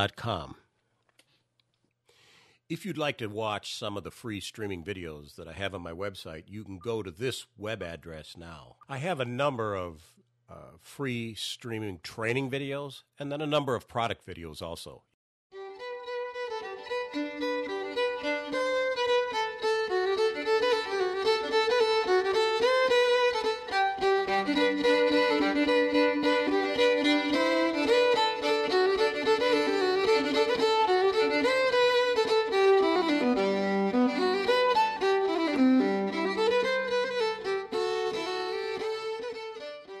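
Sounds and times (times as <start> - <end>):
instrumental music: 15.5 - 40.0.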